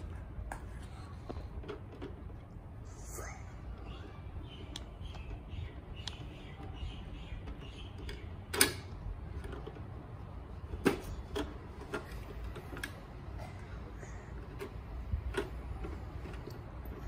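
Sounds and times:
sharp plastic clacks: 4.5 - 13.2.

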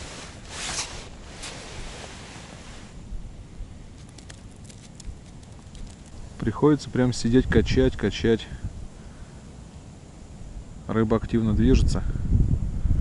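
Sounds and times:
short rustle: 0.0 - 3.1
wind rumbling on microphone: 0.0 - 13.0
faint ticks: 4.0 - 6.3.

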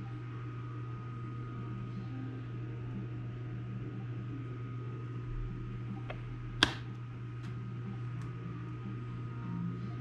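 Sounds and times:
electrical hum: 0.0 - 10.0
sharp click: 6.6 - 6.9.

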